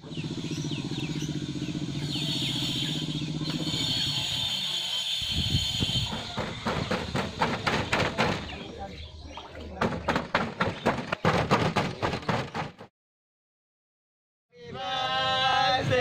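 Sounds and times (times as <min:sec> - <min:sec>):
motorcycle engine running: 0:00.0 - 0:04.6.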